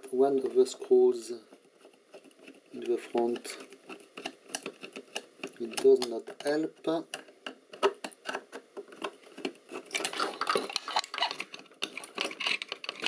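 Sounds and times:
metal clicks and rattles: 0:02.8 - 0:13.0.

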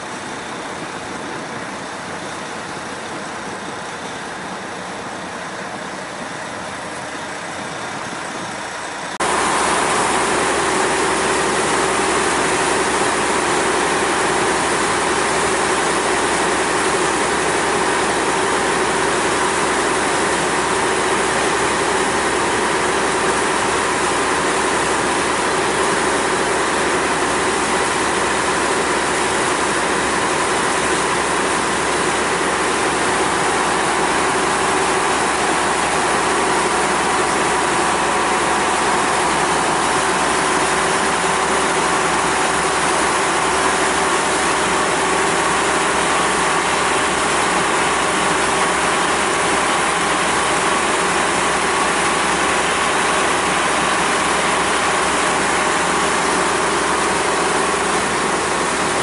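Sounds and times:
ferry engine drone: 0:00.0 - 0:59.0
water wash from wake: 0:00.0 - 0:59.0.

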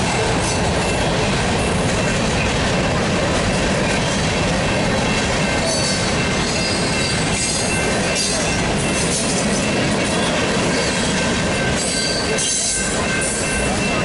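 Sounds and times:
train wheels rumbling on rails: 0:00.0 - 0:14.0
high wheel squeal: 0:04.7 - 0:10.4, 0:11.0 - 0:14.0.

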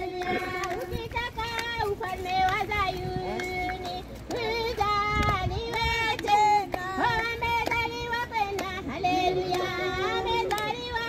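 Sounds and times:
women and children singing a hymn: 0:00.0 - 0:11.0.

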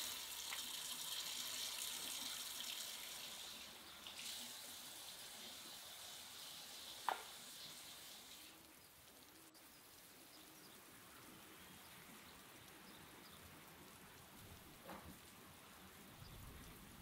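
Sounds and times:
faint outdoor background: 0:00.0 - 0:17.0
tap running into a sink: 0:07.0 - 0:07.4.

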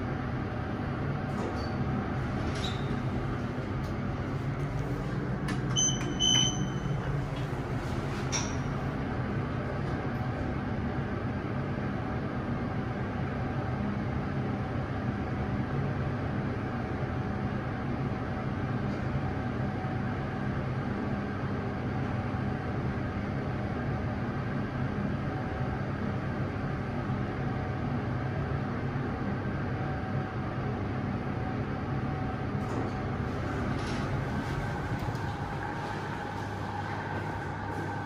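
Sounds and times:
lift ride hum: 0:00.0 - 0:12.4, 0:32.0 - 0:38.0.

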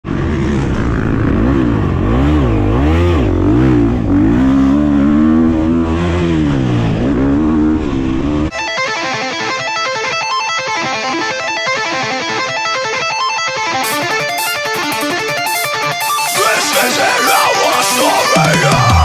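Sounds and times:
motocross bike engine revving: 0:00.0 - 0:08.5
electric guitar music: 0:07.7 - 0:19.0.

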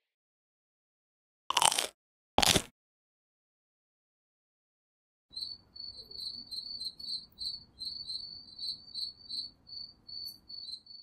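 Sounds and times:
crickets chirping: 0:05.3 - 0:11.0.

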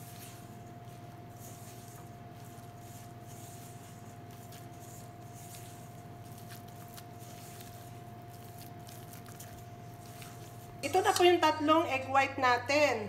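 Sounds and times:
batter stirred in metal bowl: 0:00.0 - 0:12.1
electrical hum: 0:00.0 - 0:13.0.

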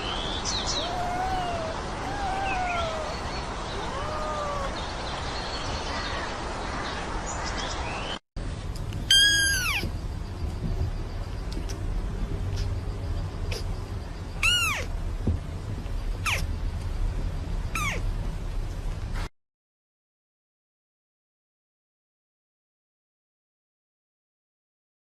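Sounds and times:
kitten meowing: 0:00.7 - 0:04.8, 0:09.1 - 0:09.9, 0:14.4 - 0:14.9, 0:16.2 - 0:16.5, 0:17.8 - 0:18.0.

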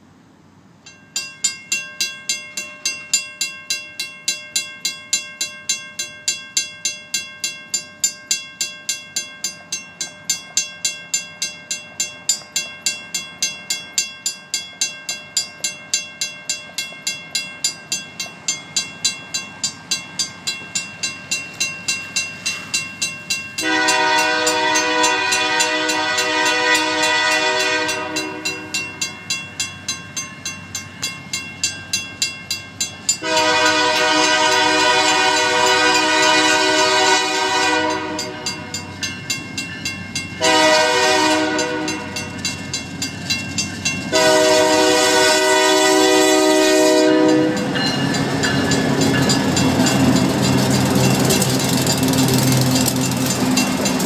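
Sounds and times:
railroad crossing bell ringing: 0:00.8 - 0:54.0
locomotive horn: 0:23.6 - 0:28.8, 0:33.2 - 0:38.7, 0:40.4 - 0:42.2, 0:44.1 - 0:47.7.

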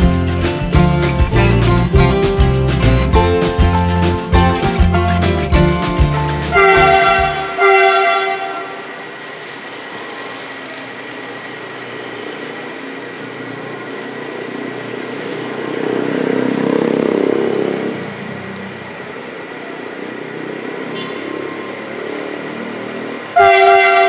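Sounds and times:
locomotive diesel engine: 0:00.0 - 0:24.0
locomotive horn blasts: 0:06.3 - 0:09.0, 0:20.9 - 0:21.4, 0:23.3 - 0:24.0.

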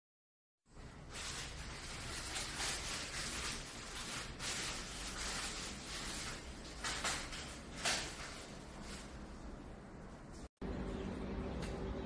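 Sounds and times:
rustling and scraping: 0:00.8 - 0:09.6.

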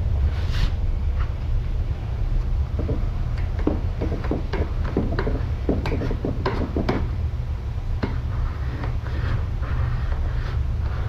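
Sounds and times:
steady low rumble: 0:00.0 - 0:11.0
squeegee scraping vinyl decal: 0:04.0 - 0:07.1, 0:08.0 - 0:11.0.

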